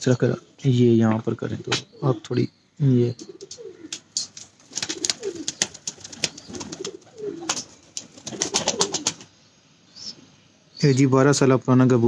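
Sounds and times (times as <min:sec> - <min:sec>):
pigeons cooing: 0:01.4 - 0:09.3.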